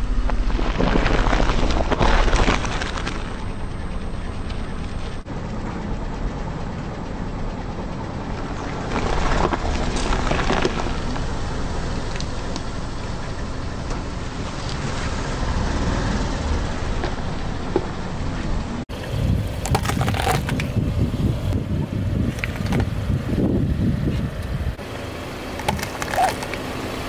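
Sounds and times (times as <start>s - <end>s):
car engine idling: 0.0s - 27.0s
vegetables crunching under tyre: 0.2s - 3.4s, 8.8s - 11.3s, 19.6s - 20.8s, 22.3s - 22.9s, 25.6s - 26.7s.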